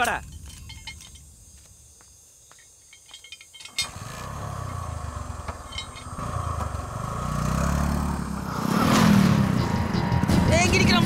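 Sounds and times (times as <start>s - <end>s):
motorcycle engine starting and revving: 3.7s - 11.0s.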